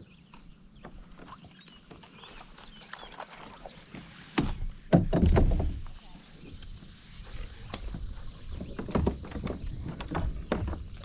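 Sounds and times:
paddle knocking on hull: 3.9s - 6.0s, 7.7s - 11.0s.

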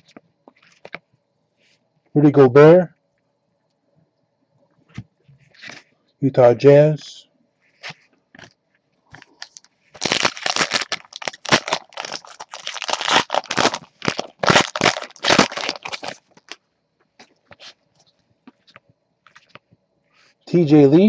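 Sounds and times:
wrapper crackling and crinkling: 9.1s - 16.6s.

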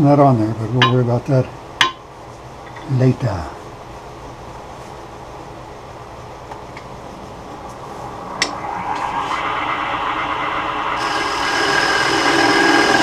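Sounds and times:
wood lathe spinning: 8.0s - 13.0s
turning tool cutting wood: 8.5s - 13.0s.

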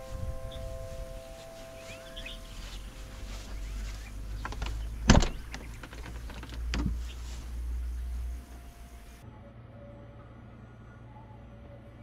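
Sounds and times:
door latch clicks: 4.4s - 7.0s
door clunk: 4.4s - 7.1s.

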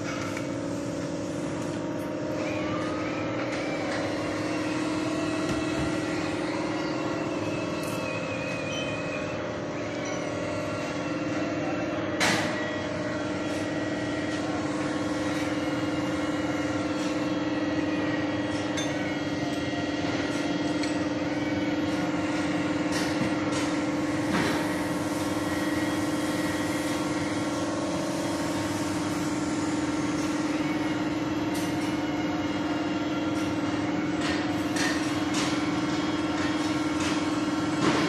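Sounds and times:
mechanical hum: 0.0s - 38.0s.

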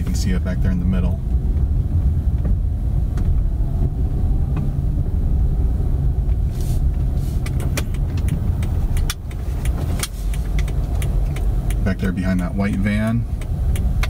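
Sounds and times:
car engine and tyres rumbling: 0.0s - 14.0s
light clicks and ticks: 7.4s - 14.0s.

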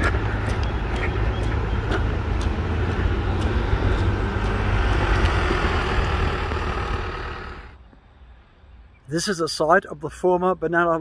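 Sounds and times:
outdoor rumble with hiss: 0.0s - 9.9s
faint ticks: 0.1s - 5.4s.

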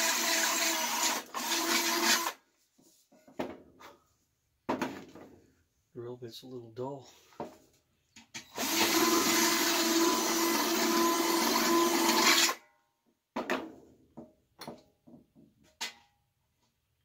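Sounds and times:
drill boring through metal can: 0.0s - 2.4s, 8.5s - 12.6s.

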